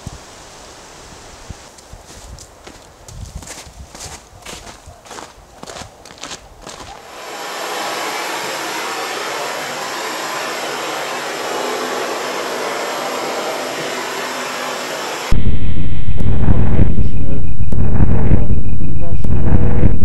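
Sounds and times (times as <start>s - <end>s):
loud low rumble: 7.0s - 20.0s.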